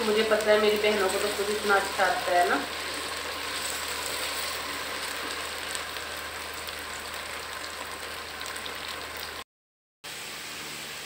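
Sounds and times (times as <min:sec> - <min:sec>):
food sizzling in hot oil: 0:00.0 - 0:09.4, 0:10.0 - 0:11.0
spatula stirring in pan: 0:02.7 - 0:05.9.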